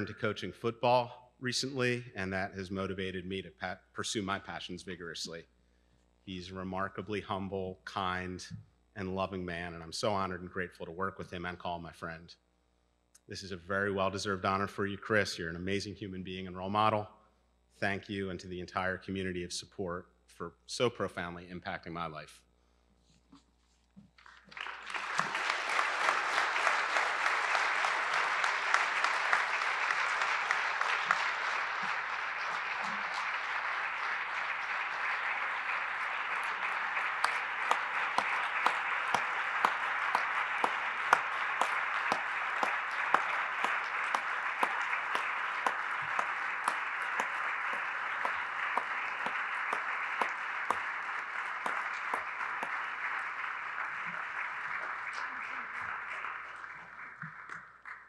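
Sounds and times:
audience applauding: 24.2s - 58.0s.

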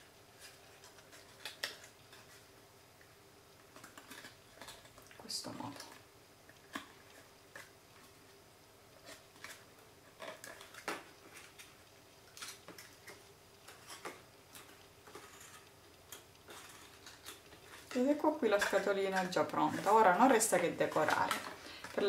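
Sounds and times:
cardstock crinkling and clicking: 0.4s - 2.5s, 8.9s - 22.0s.

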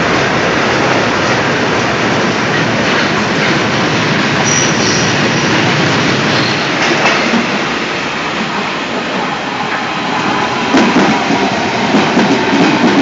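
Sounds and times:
electric train pulling in: 0.0s - 13.0s
railway wagons rumbling past: 0.0s - 13.0s.

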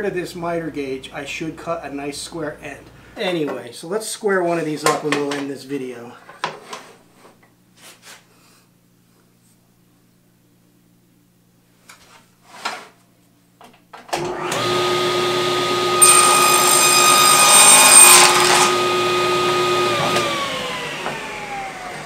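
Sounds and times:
table saw motor running: 14.2s - 22.0s
saw blade cutting wood: 14.6s - 20.5s.

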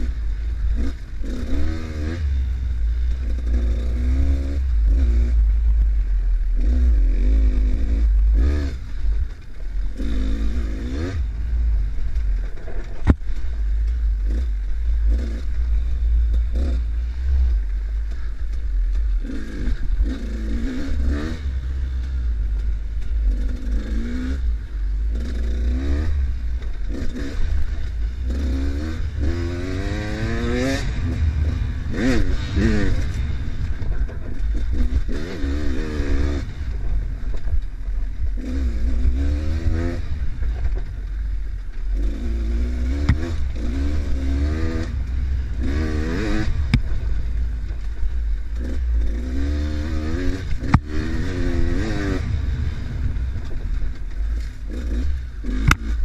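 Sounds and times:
dirt bike engine revving: 0.0s - 56.0s
heavy low rumble: 0.0s - 56.0s.

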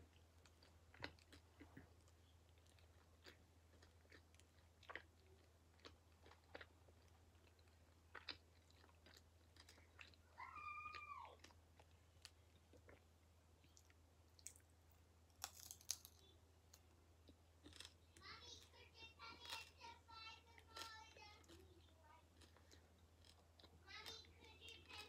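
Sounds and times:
high rising and falling cry: 10.3s - 11.4s.

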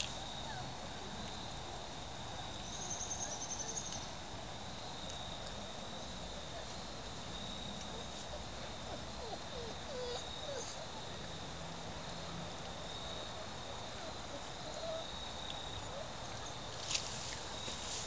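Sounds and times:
rapid insect trill: 2.6s - 6.5s.

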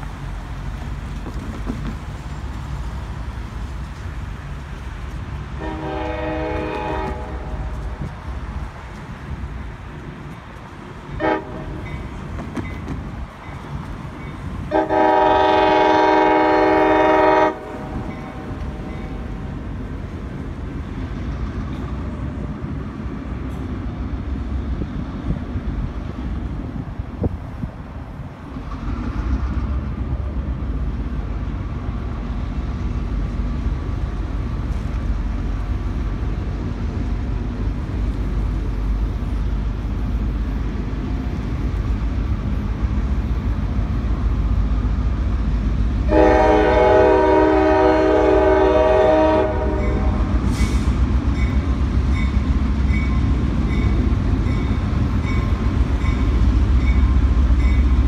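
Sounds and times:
diesel locomotive rumbling: 0.0s - 58.0s
train horn blast: 5.6s - 8.0s, 11.2s - 11.8s, 14.7s - 19.2s, 46.0s - 51.0s.

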